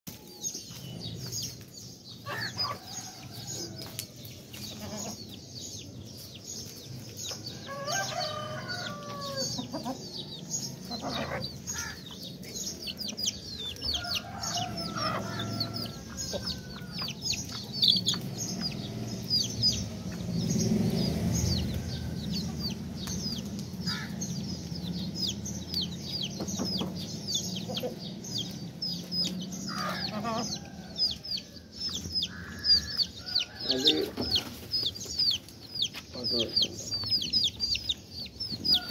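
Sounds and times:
chicks peeping: 0.1s - 38.9s
hens clucking: 8.8s - 19.0s, 23.3s - 30.8s
low rumble: 16.9s - 29.8s.

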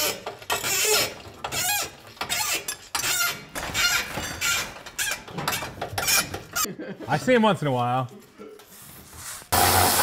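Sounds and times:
wrench ratcheting with squeaks: 0.0s - 6.7s.

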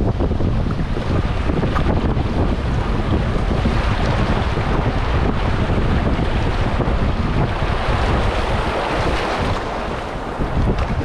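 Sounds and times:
water rushing around kayak: 0.0s - 11.0s
wind rumbling on microphone: 0.0s - 11.0s.

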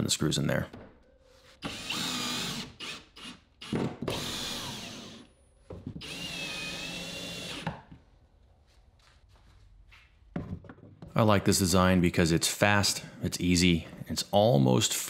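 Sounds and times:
cordless drill motor whine: 4.1s - 5.2s, 6.0s - 7.6s.

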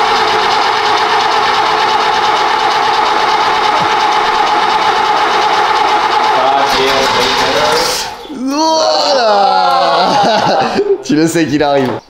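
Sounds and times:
car engine running: 0.0s - 8.2s.

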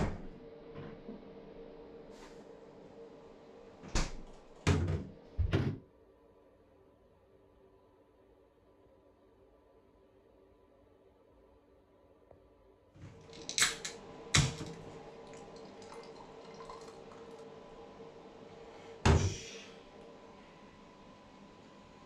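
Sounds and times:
beer pouring into a glass: 13.2s - 17.7s
can seal cracking open: 13.3s - 14.8s.

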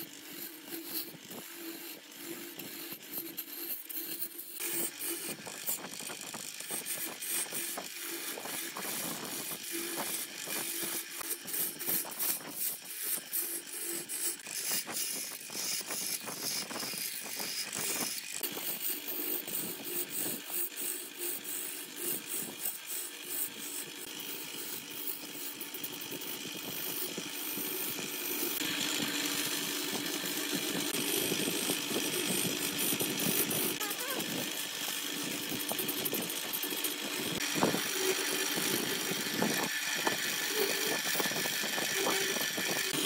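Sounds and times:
lathe motor hum: 0.0s - 43.0s
tool hissing on wood: 0.0s - 43.0s
tool scraping wood: 0.0s - 43.0s.

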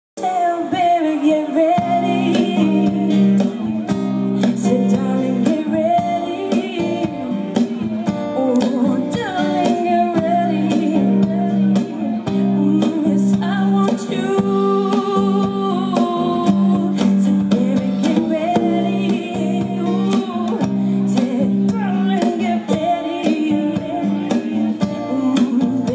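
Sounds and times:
acoustic guitar: 0.2s - 25.9s
woman singing: 0.2s - 25.9s.

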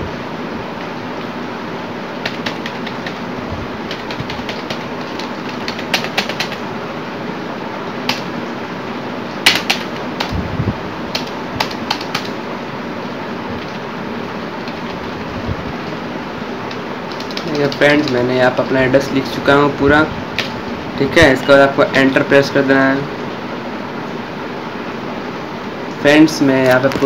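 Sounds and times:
steady background hiss: 0.0s - 27.0s
computer keys clicking: 2.2s - 3.2s, 3.9s - 6.6s, 9.4s - 10.4s, 11.1s - 12.4s, 14.6s - 15.3s, 16.7s - 18.2s.

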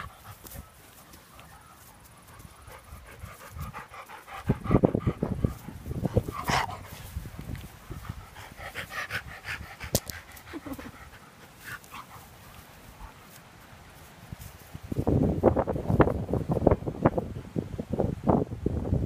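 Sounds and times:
dog panting: 0.0s - 13.4s
fur and grass rustling: 0.0s - 17.0s.

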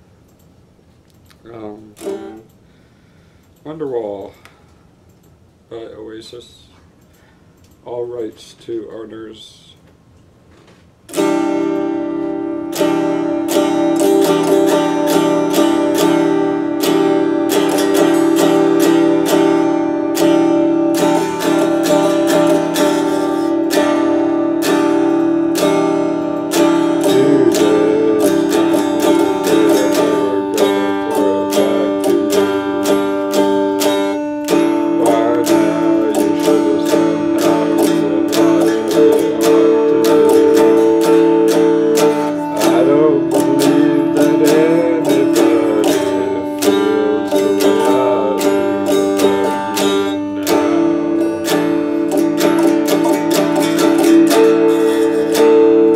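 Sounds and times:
electric guitar strumming: 1.9s - 2.9s, 11.1s - 55.9s.

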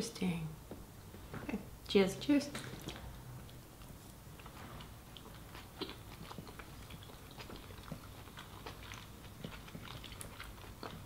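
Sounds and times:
people chewing food: 2.6s - 11.0s.

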